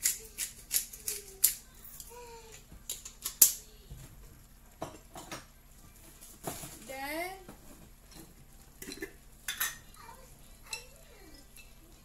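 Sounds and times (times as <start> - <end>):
pepper mill grinding: 0.0 - 3.6.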